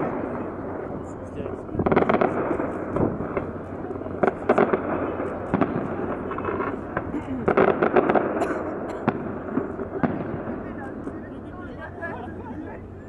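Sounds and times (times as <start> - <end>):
firework bangs and crackles: 0.0 - 11.9.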